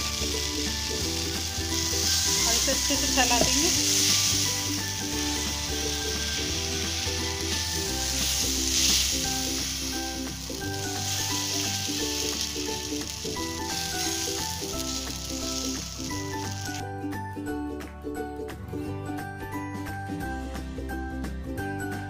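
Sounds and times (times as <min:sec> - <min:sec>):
batter sizzling on hot griddle: 0:00.0 - 0:16.8.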